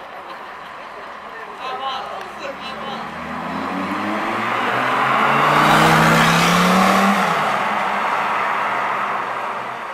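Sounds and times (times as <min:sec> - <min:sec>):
sports car engine accelerating past: 0:02.5 - 0:09.8.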